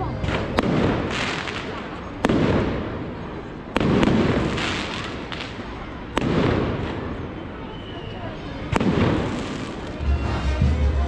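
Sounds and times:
rolling echo: 0.0 - 11.0.

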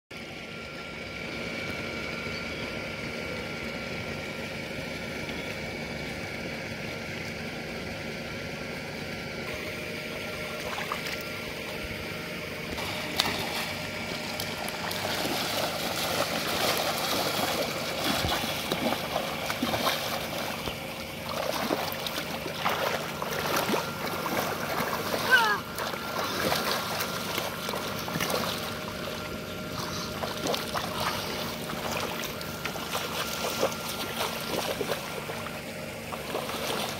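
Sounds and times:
faint hum: 0.2 - 36.9
muddy water splashing: 10.3 - 12.0, 12.8 - 36.9.

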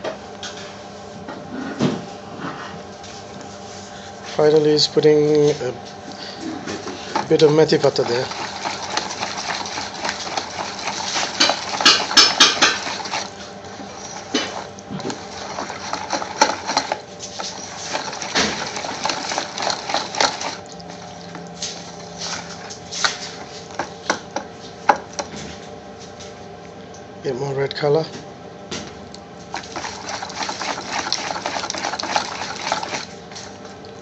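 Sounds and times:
wet stirring and slapping in a bowl: 6.6 - 25.5, 29.4 - 34.0
utensil knocking against bowl: 11.2 - 13.2.

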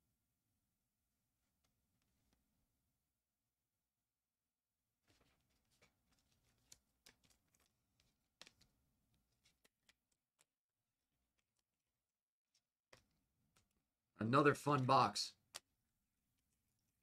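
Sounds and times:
trading cards clicking and rustling: 5.1 - 11.9.

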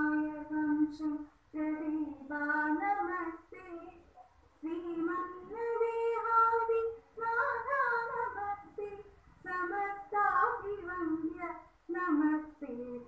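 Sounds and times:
girls singing into a microphone: 0.0 - 13.0.

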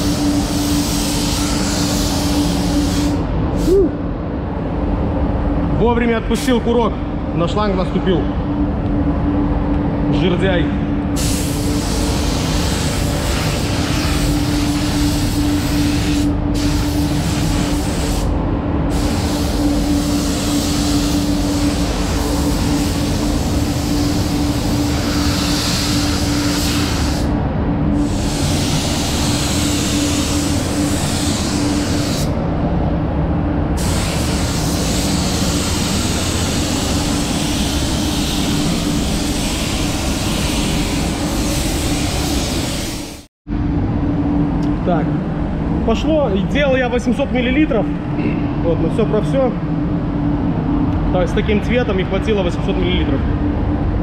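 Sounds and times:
spray gun hissing: 0.0 - 3.2, 11.2 - 18.3, 18.9 - 27.3, 28.0 - 32.3, 33.8 - 43.3
ventilation rumble and hum: 0.0 - 54.0.

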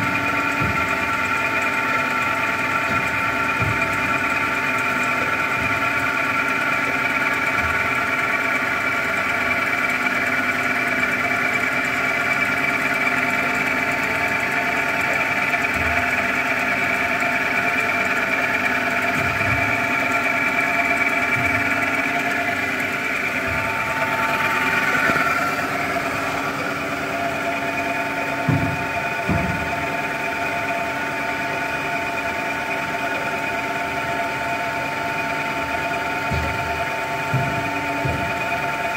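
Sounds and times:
band saw whining: 0.0 - 38.9
dull thumps: 23.0 - 30.2.

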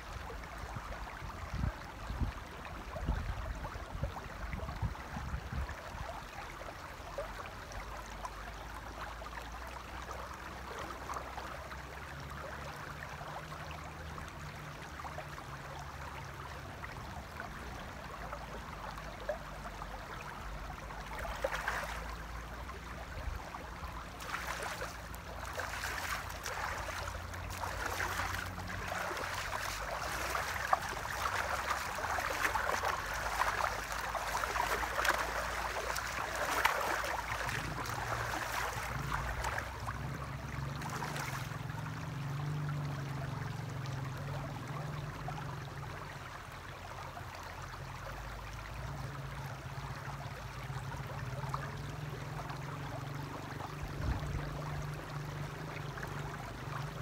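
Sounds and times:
river flowing over stones: 0.0 - 57.0
hands splashing water: 24.1 - 39.8.

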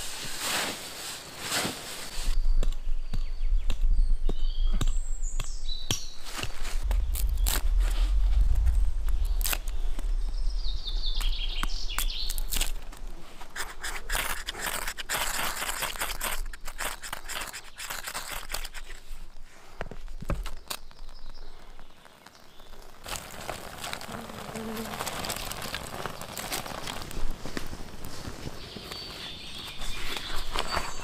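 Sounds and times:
bird chirping: 2.3 - 6.3, 8.6 - 12.6, 28.5 - 31.0
blade scraping wood shavings: 12.3 - 19.2
knife splitting wood: 13.5 - 19.1.

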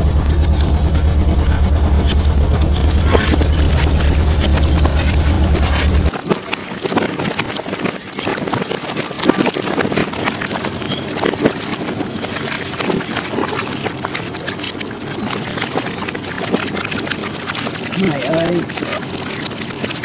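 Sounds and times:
wind rushing: 0.0 - 6.1
sea rushing: 0.0 - 20.0.

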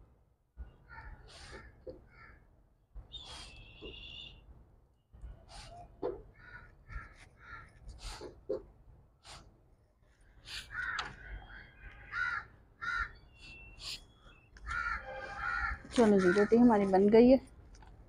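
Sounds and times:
crows cawing: 0.8 - 2.5, 6.3 - 8.3, 10.5 - 13.2, 14.6 - 16.8.

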